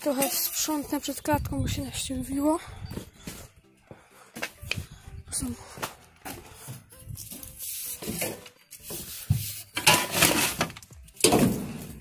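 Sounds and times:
hay and litter scraping and rustling: 0:00.0 - 0:01.1, 0:07.1 - 0:12.0.

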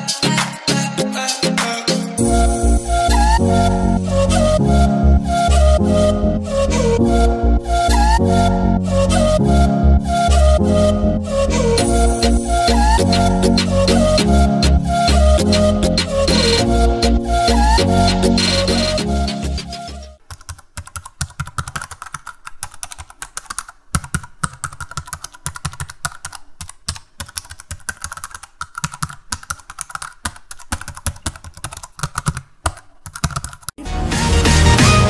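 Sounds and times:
music: 0:00.0 - 0:20.2, 0:33.8 - 0:35.0
computer keyboard typing: 0:18.1 - 0:33.8.

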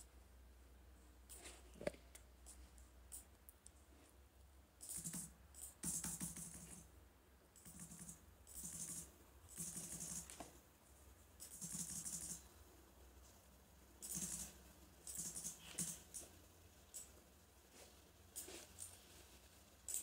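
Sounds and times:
keyboard typing clicks: 0:14.0 - 0:16.3.

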